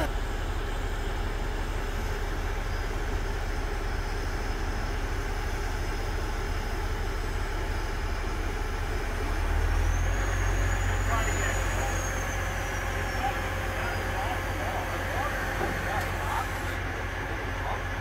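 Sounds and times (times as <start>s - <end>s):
high hydraulic whine: 0.0s - 6.8s, 7.4s - 18.0s
crane engine humming: 0.0s - 18.0s.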